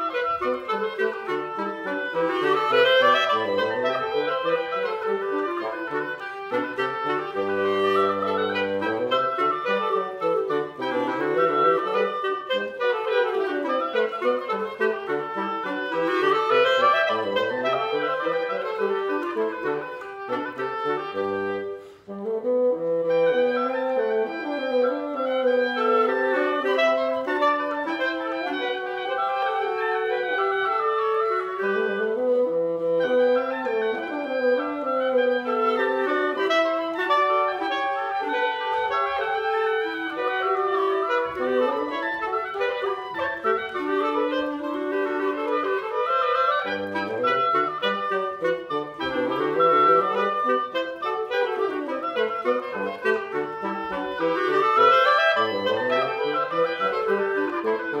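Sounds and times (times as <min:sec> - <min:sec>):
bassoon low notes: 0:00.0 - 0:58.0
clarinets playing: 0:00.0 - 0:58.0.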